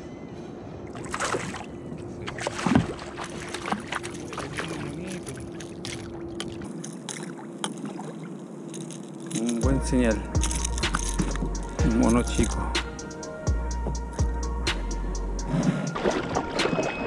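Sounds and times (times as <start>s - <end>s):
faint steady hum: 0.0s - 15.8s
water sloshing and splashing: 0.8s - 9.6s, 15.6s - 17.0s
fish thrashing at surface: 2.3s - 9.0s.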